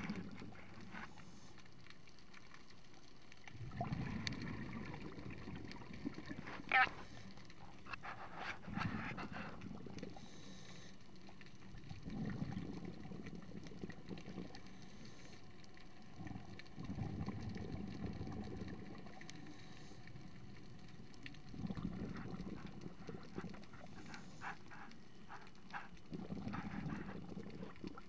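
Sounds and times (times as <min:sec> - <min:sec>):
exhaled air bubbling: 0:00.0 - 0:28.0
regulator inhale hiss: 0:08.2 - 0:11.1, 0:14.7 - 0:15.5, 0:19.4 - 0:20.3.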